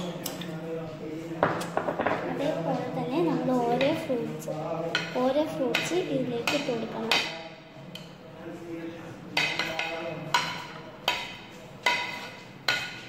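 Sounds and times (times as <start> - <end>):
metal spoon clinking on steel bowl: 9.4 - 13.0.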